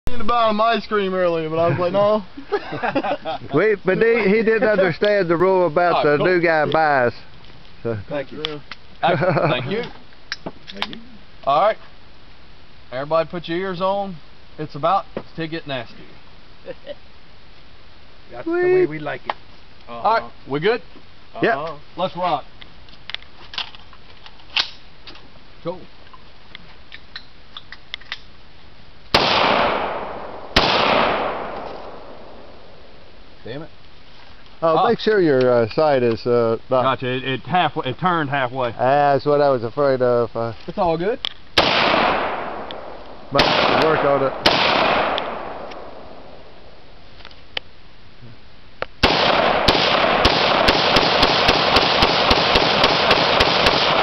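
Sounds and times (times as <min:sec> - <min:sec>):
rifle shots with echo: 0:29.1 - 0:32.8, 0:41.6 - 0:46.6, 0:49.0 - 0:54.0.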